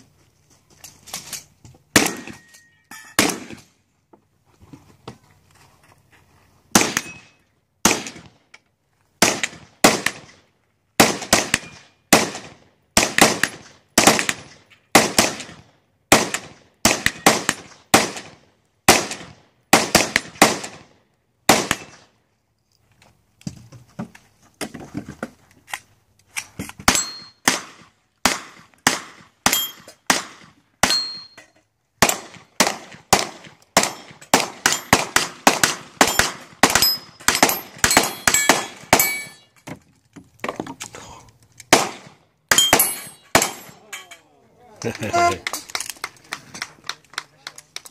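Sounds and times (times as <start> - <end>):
gunshots: 1.9 - 2.4, 3.2 - 3.7, 6.7 - 7.2, 7.8 - 8.3, 9.2 - 10.4, 11.0 - 20.9, 21.5 - 22.1, 26.9 - 31.2, 32.0 - 39.4, 41.7 - 43.8
steel targets ringing: 26.9 - 27.4, 29.5 - 29.9, 30.8 - 31.6, 36.0 - 39.6, 42.5 - 44.2.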